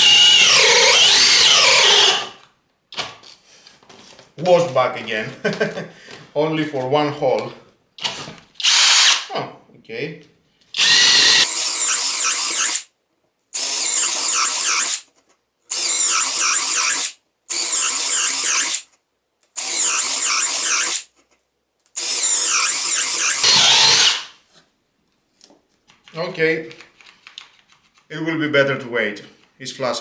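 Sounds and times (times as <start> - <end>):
cordless drill running: 0.0 - 2.4, 8.6 - 9.3, 10.8 - 12.9, 13.6 - 15.0, 15.7 - 18.8, 19.6 - 21.0, 22.0 - 24.4.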